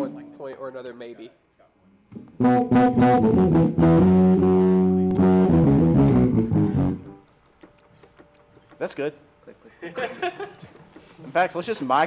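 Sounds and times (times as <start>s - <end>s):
electric bass and guitar riff: 2.4s - 7.2s.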